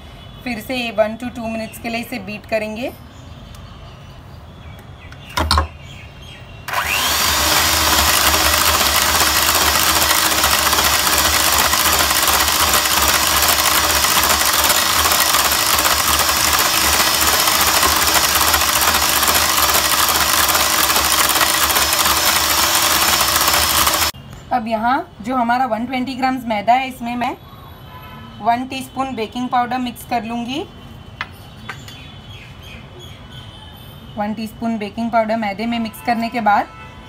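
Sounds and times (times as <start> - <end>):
electric hand mixer running: 6.7 - 24.2.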